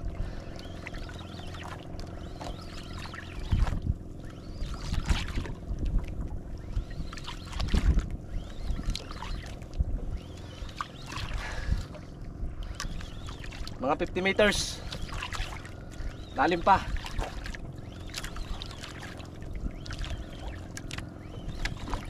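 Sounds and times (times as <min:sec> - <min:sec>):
steady low hum: 0:00.0 - 0:22.0
water slapping against hull: 0:00.0 - 0:22.0
wind buffeting microphone: 0:03.4 - 0:15.1, 0:19.4 - 0:20.6.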